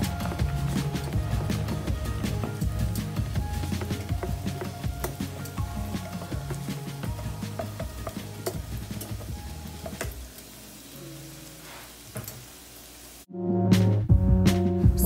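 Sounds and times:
background music: 0.0s - 10.2s, 13.3s - 15.0s
seafood sizzling in a hot pan: 0.0s - 13.3s.

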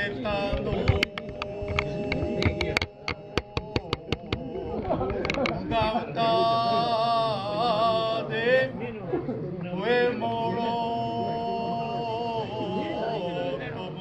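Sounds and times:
man chanting long held notes: 0.4s - 5.4s.

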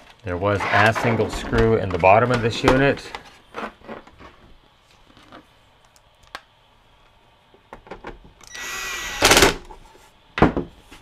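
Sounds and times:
cordless drill whining: 8.4s - 9.6s.

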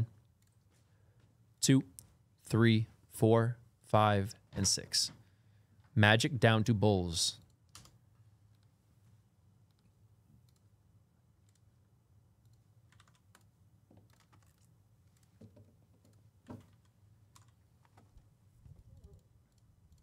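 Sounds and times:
keyboard typing and clicks: 7.4s - 8.7s, 11.4s - 11.7s, 12.4s - 18.1s.

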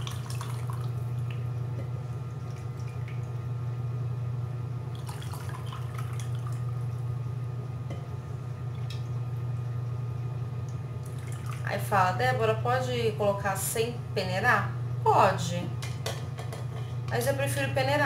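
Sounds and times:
broth trickling through a sieve: 0.0s - 1.5s, 4.9s - 7.0s, 11.0s - 11.8s
liquid splashing: 0.0s - 1.5s, 4.9s - 6.8s, 11.0s - 11.8s
steady low hum: 0.0s - 18.0s.

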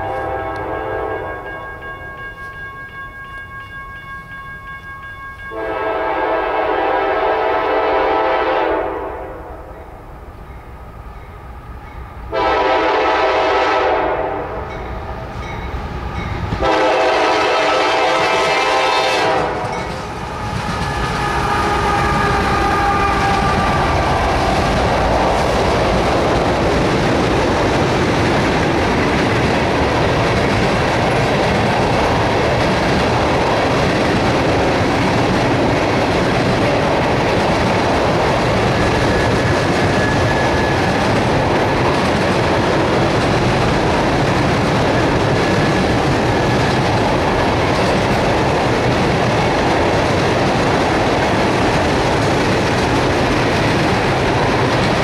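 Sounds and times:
locomotive air horn blasts: 0.0s - 1.6s, 5.5s - 9.5s, 12.3s - 14.7s, 16.6s - 19.8s, 21.1s - 24.0s
train rumbling past: 0.0s - 55.0s
clickety-clack of wheels on rail: 10.4s - 55.0s.

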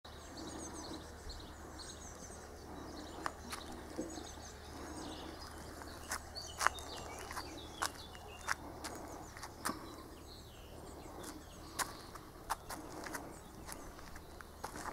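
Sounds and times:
small birds chirping: 0.1s - 14.9s
steady low hum: 0.1s - 14.9s.

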